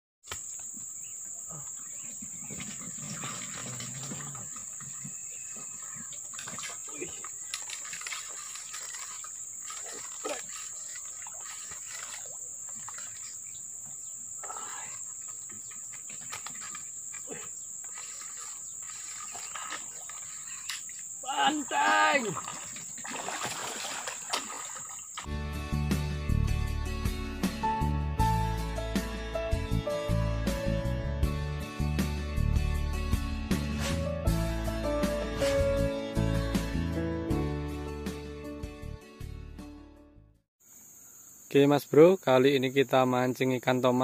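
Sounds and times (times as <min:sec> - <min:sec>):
insects droning: 0:00.3 - 0:25.3, 0:40.6 - 0:44.0.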